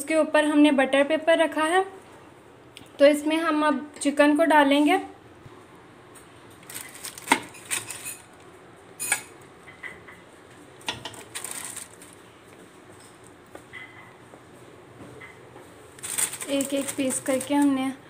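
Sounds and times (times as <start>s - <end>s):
paper crinkling: 6.6s - 8.2s, 11.1s - 12.3s, 16.0s - 18.0s.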